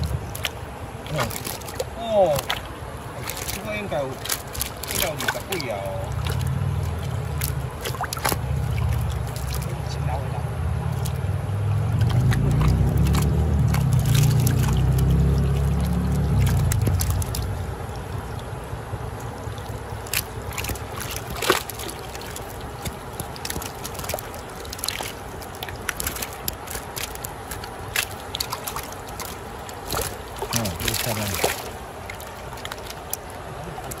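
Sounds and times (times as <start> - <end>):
fish splashing in water: 0.0 - 34.0
stream water rushing: 0.0 - 34.0
heavy low rumble: 5.0 - 25.9.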